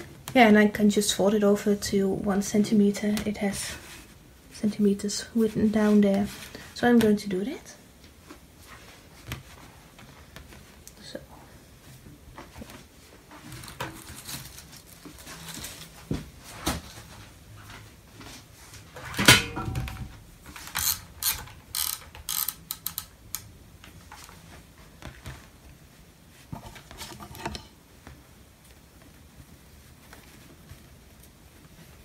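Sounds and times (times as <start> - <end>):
ruler and fabric clicks and rustles: 19.0 - 25.6.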